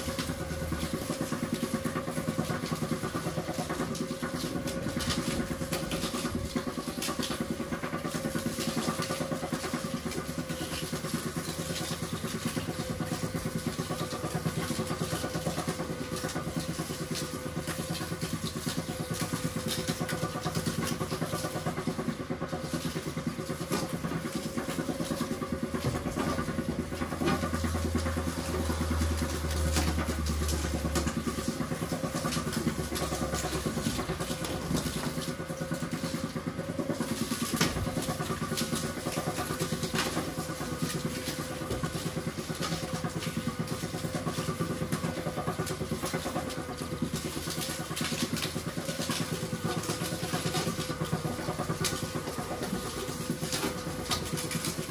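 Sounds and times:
sugarcane mill humming: 0.0 - 54.9.

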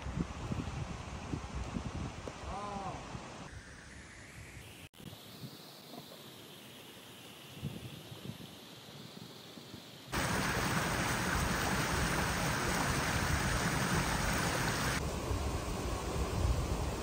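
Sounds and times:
river water rushing: 10.2 - 15.0.

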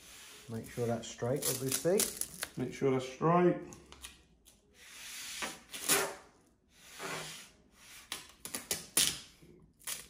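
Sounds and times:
hand rubbing tape on worktop: 0.0 - 2.1, 4.8 - 8.4.

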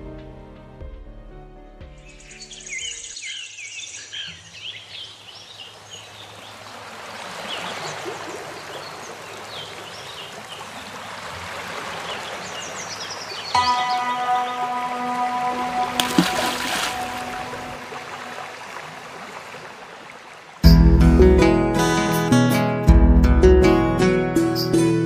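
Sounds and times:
birds chirping: 2.0 - 6.8, 7.4 - 18.8
running water rushing: 5.3 - 20.7.

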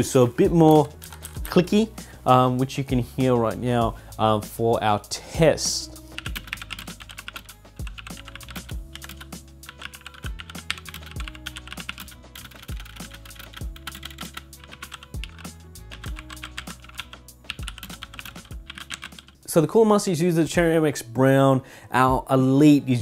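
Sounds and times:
background music with bass line: 0.0 - 19.7
clicky mechanical keyboard typing: 6.2 - 15.4, 16.0 - 19.3.

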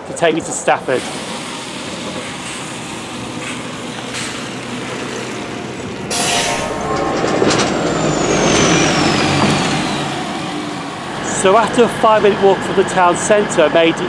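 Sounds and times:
diesel bus engine running: 0.0 - 14.0
high whine: 1.0 - 12.9
air brake hiss: 6.1 - 6.8.

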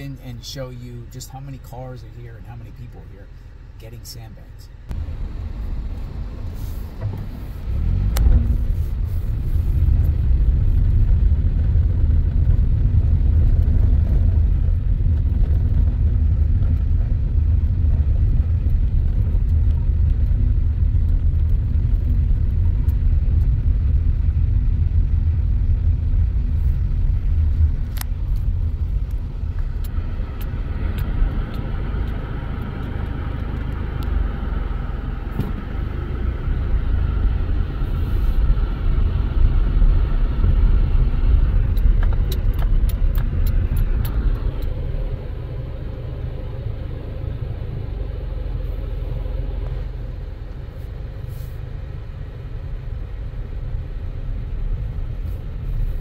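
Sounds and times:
car rumbling on gravel: 4.9 - 52.5.

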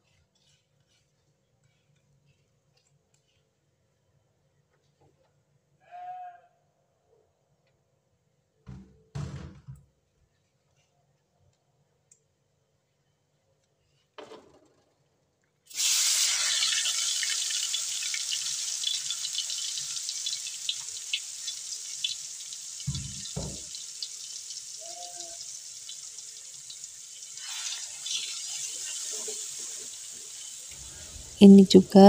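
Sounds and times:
spatula stirring paste: 0.0 - 3.6
paste sizzling in hot oil: 15.7 - 31.5.

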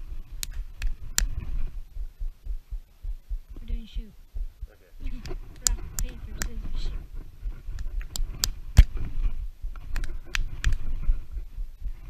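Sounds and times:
low rumble: 0.0 - 12.0
hands clicking and tapping: 9.8 - 10.9.

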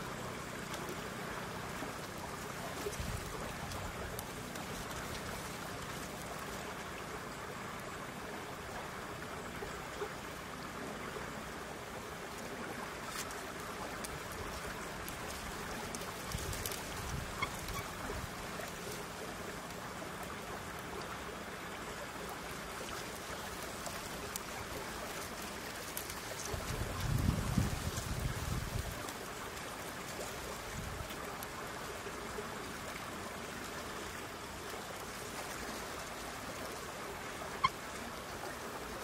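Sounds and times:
water rushing: 0.0 - 39.0
faint clicks: 1.7 - 6.7.

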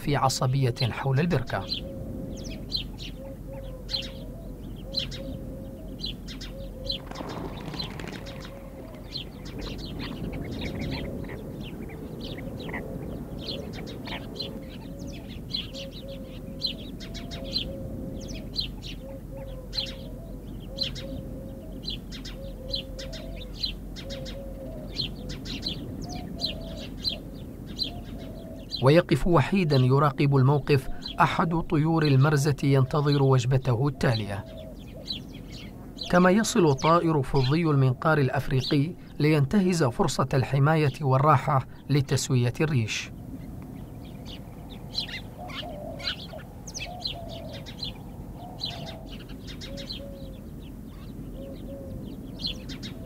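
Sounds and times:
soft low bird call: 0.8 - 31.6, 42.7 - 53.0
rush of wingbeats: 7.0 - 14.7.

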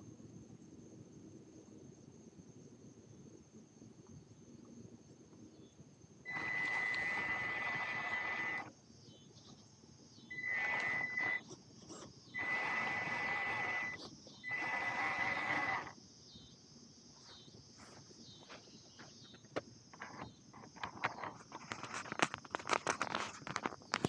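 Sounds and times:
electric motor high whine: 6.3 - 8.7, 10.3 - 11.4, 12.3 - 16.0
gear and tyre noise: 6.3 - 8.7, 10.3 - 16.0.

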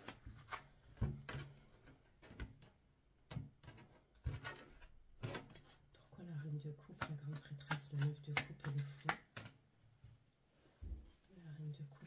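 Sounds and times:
cards shuffled and tapped: 6.9 - 9.6.

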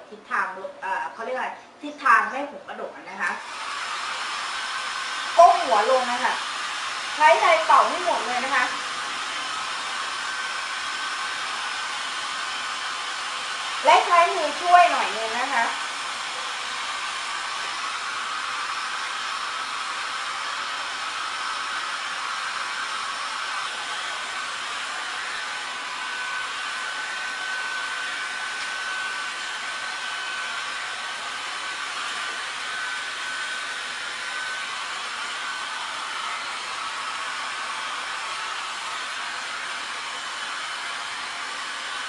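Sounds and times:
hair dryer blowing: 3.1 - 42.0.

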